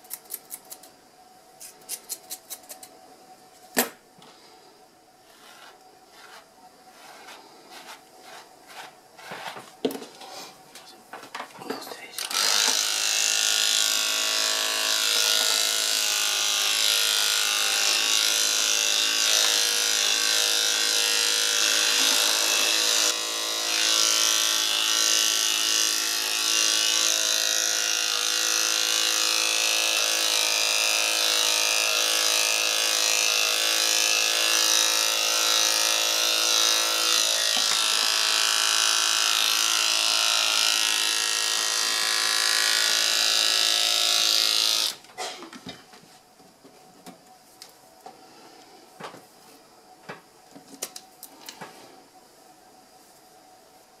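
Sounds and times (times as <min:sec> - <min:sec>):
electric clippers buzzing: 0:12.2 - 0:45.0.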